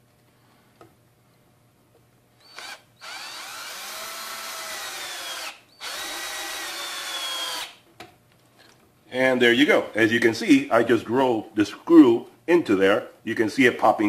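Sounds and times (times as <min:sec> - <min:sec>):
cordless drill driving a screw: 0:02.4 - 0:07.8.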